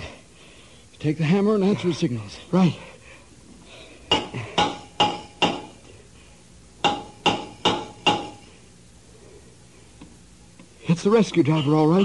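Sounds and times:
hammer clanging on metal hull: 4.1 - 5.8, 6.8 - 8.4.

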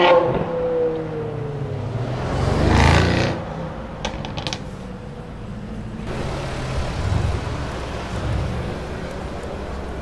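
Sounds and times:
low engine rumble: 0.4 - 10.0
exhaust crackles: 6.1 - 10.0.

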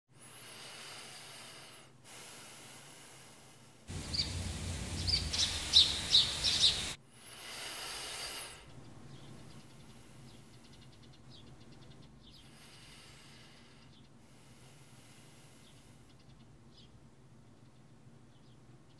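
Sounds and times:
woman breathing softly: 0.1 - 4.0, 7.1 - 11.3, 12.3 - 16.4
birds chirping: 3.9 - 7.0, 8.7 - 14.2.

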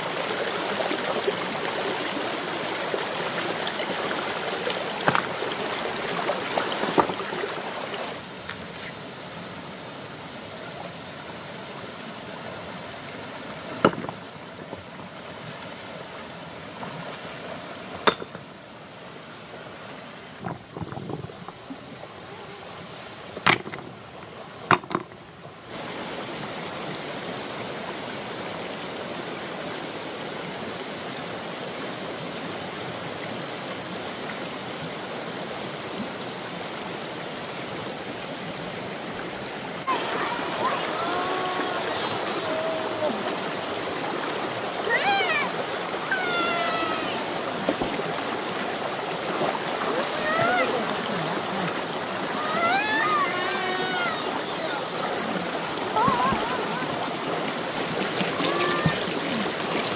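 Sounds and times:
water rushing: 0.0 - 59.9
sharp knocks: 18.0 - 18.4.

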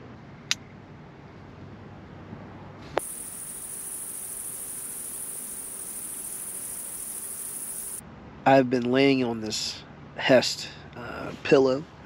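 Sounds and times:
crickets chirring: 3.0 - 8.0.

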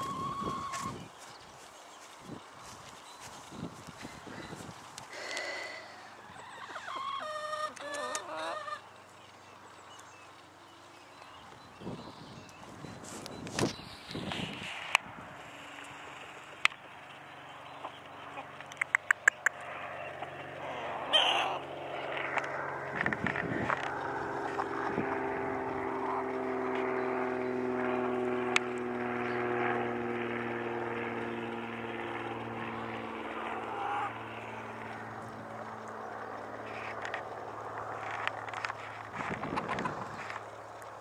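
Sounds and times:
sharp clicks: 18.6 - 19.7
motor drone: 19.5 - 41.0.

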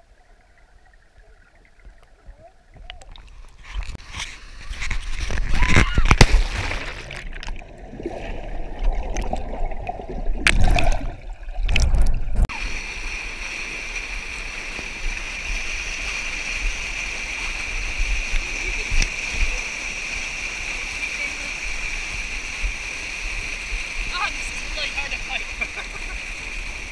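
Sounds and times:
river water splashing: 0.0 - 26.9
whitewater rushing: 12.5 - 26.9.

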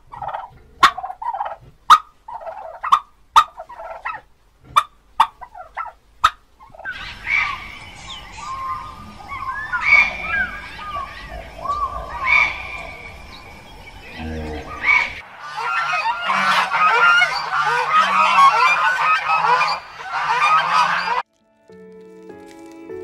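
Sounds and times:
ducks quacking: 0.0 - 21.2
low rumble: 6.9 - 15.4.

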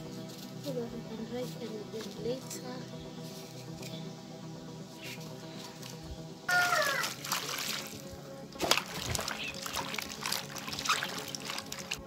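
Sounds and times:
background music: 0.0 - 12.0
water splashing in a metal basin: 5.8 - 12.0.

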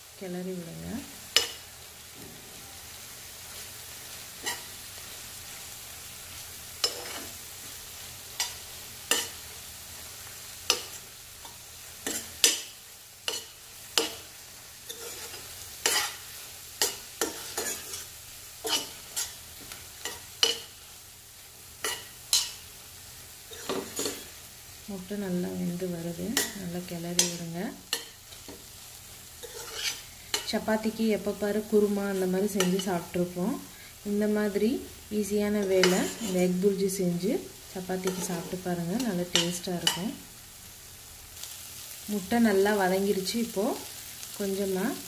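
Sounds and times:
egg sizzling: 0.0 - 45.0
metal spoon scraping frying pan: 4.4 - 4.8, 6.8 - 7.4, 8.4 - 9.4, 12.0 - 12.7, 14.9 - 20.8, 21.8 - 22.6, 23.5 - 24.4, 29.4 - 30.6, 35.6 - 36.6, 38.0 - 40.1.

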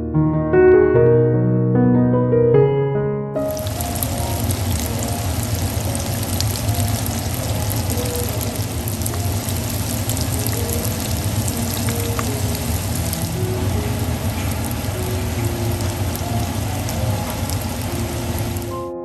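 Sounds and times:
tofu sizzling in hot oil: 3.5 - 18.7.

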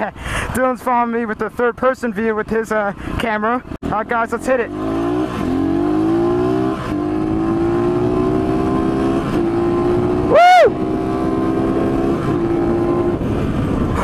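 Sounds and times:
dirt bike engine revving: 3.8 - 13.2
high-pitched whoop: 10.2 - 10.8.

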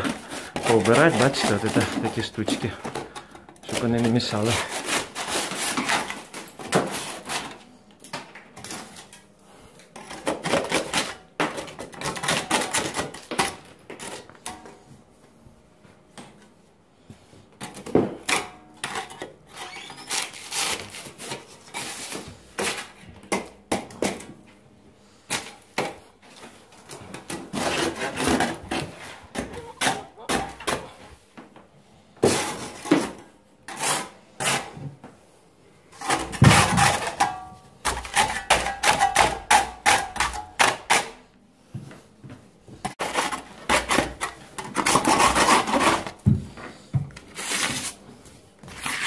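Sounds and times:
putty knife scraping plaster: 0.0 - 7.6, 18.3 - 22.9, 27.3 - 31.1, 33.7 - 34.8, 43.0 - 46.2, 48.6 - 49.0.

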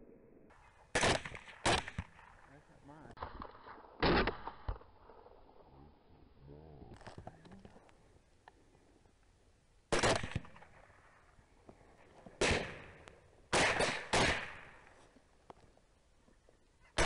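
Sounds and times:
rifle shots with echo: 0.5 - 5.3, 9.9 - 11.3, 12.0 - 15.0.

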